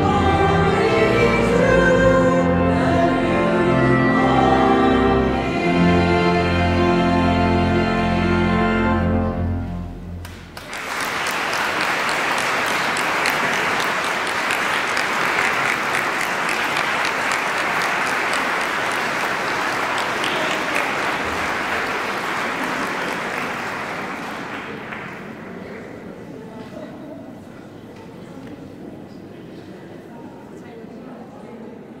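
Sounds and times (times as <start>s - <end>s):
choir holding a chord: 0.0s - 10.2s
audience applause: 10.2s - 25.8s.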